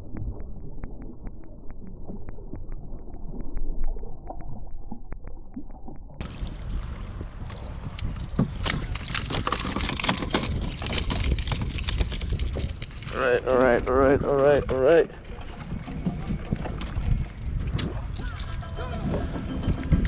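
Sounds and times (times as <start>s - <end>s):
water splashing: 0.0s - 7.9s.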